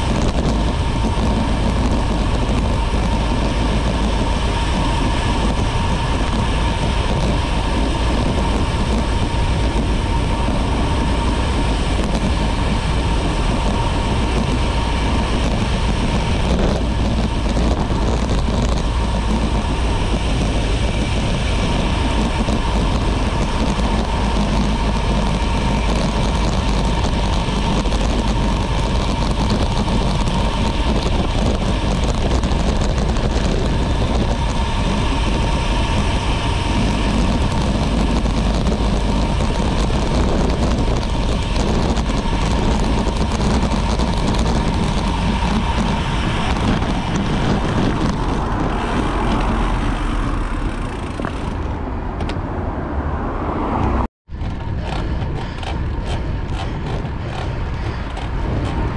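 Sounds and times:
rolling road noise: 0.0 - 58.9
wind rush: 0.0 - 58.9.

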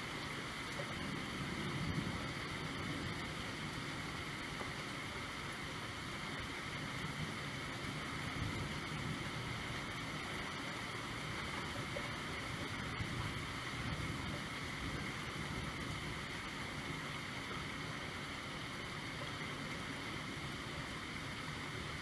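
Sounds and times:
steady rain: 0.0 - 22.0.

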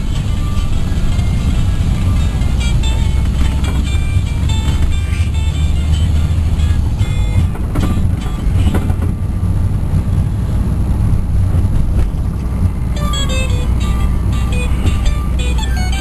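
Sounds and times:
road and engine rumble in car: 0.0 - 16.0
faint music: 13.0 - 16.0.

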